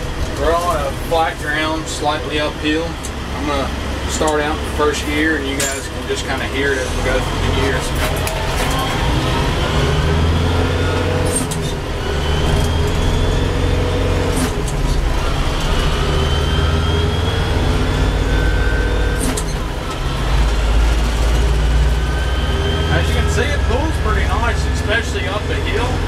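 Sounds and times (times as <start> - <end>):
tractor engine through gears: 0.0 - 26.0.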